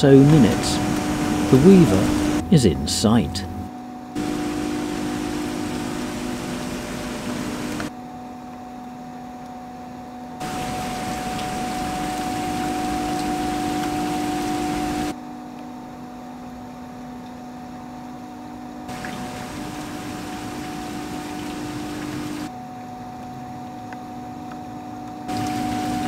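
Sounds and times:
water rushing off gate: 0:00.0 - 0:02.8, 0:04.2 - 0:07.9, 0:10.4 - 0:15.1, 0:18.9 - 0:22.5, 0:25.3 - 0:26.0
low hum: 0:00.0 - 0:07.9, 0:10.4 - 0:15.2, 0:18.9 - 0:22.5, 0:25.3 - 0:26.0
rain: 0:00.0 - 0:07.9, 0:10.3 - 0:18.2, 0:18.8 - 0:26.0.

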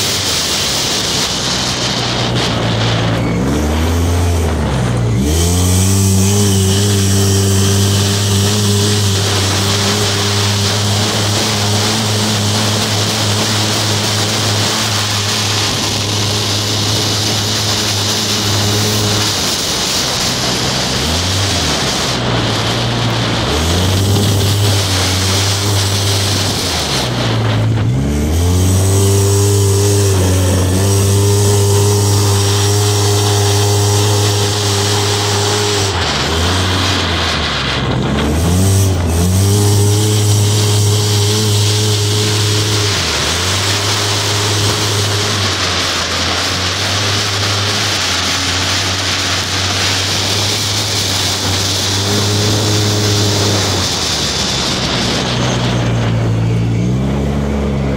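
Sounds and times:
engine revving hard: 0:00.0 - 0:57.9
wind noise: 0:00.0 - 0:57.9.

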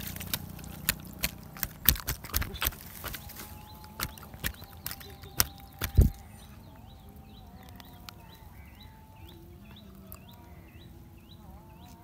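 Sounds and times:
sharp knocks: 0:00.0 - 0:06.1.

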